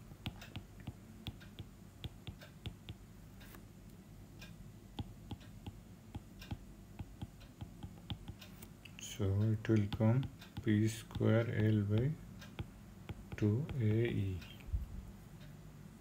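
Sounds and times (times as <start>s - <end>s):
faint low hum: 0.0s - 16.0s
stylus tapping on tablet: 0.2s - 3.0s, 4.9s - 8.7s, 9.7s - 14.2s.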